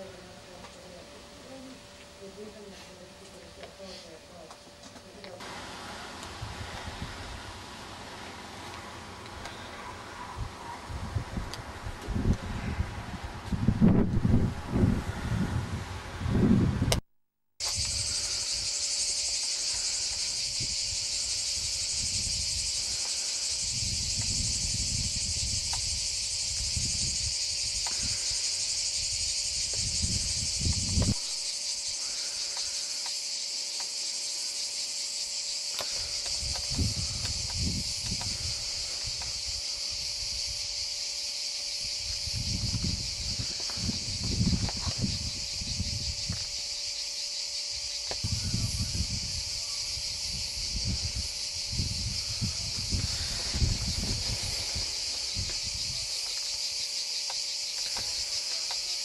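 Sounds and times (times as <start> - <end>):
cicadas chirring: 0.0 - 13.0, 17.6 - 59.0
wind buffeting microphone: 10.2 - 17.0, 23.6 - 28.3, 29.0 - 31.3, 36.3 - 40.8, 41.8 - 46.6, 48.2 - 56.2.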